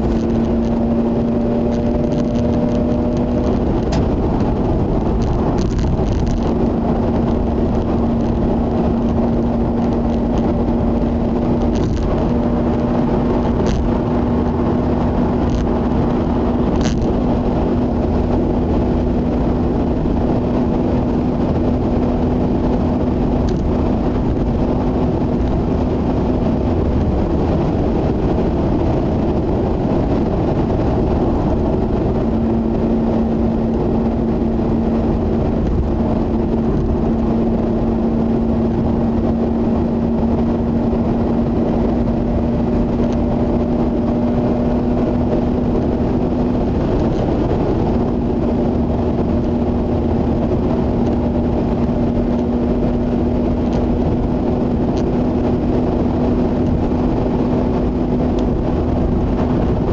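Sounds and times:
engine hum: 0:00.0 - 0:59.9
tyre and road noise: 0:00.0 - 0:59.9.

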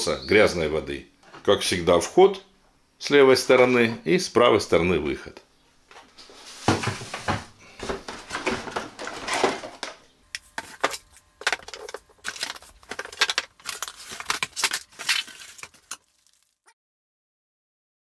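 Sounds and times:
packaging rustling: 0:06.5 - 0:16.6
plastic parts clattering and clicking: 0:08.3 - 0:16.4.

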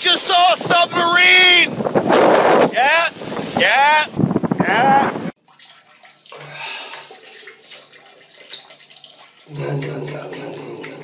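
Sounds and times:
shower water running: 0:05.4 - 0:11.0
man gurgling water: 0:06.3 - 0:11.0.

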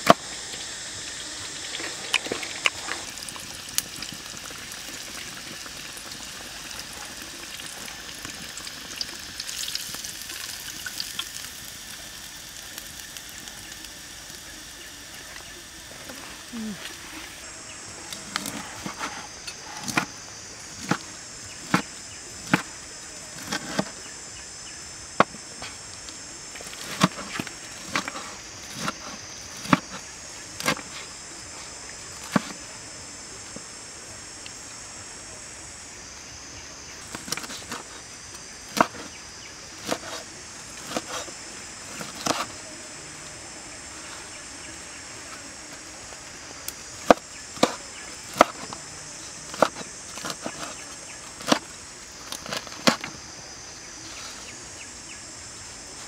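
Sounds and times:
high-pitched insect buzz: 0:00.0 - 0:56.0
cleaver chopping on wooden board: 0:21.7 - 0:22.7, 0:32.2 - 0:32.6, 0:38.7 - 0:39.1, 0:40.8 - 0:41.3, 0:47.0 - 0:48.8, 0:49.5 - 0:50.8, 0:51.4 - 0:51.6.

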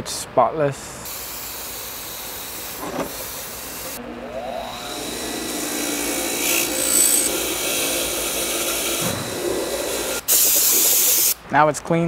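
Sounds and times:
wire-brush wheel grinding metal: 0:04.3 - 0:10.2.

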